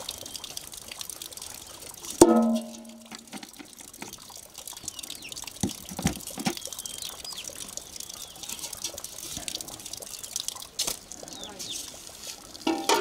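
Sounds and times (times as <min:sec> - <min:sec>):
water trickling into concrete basin: 0:00.0 - 0:13.0
small birds chirping: 0:04.6 - 0:12.0.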